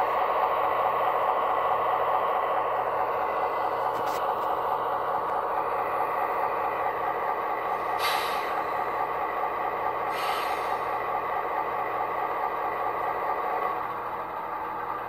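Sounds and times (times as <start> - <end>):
diesel engine idling through speakers: 0.0 - 15.0
air release hisses: 7.9 - 8.6, 10.1 - 10.8.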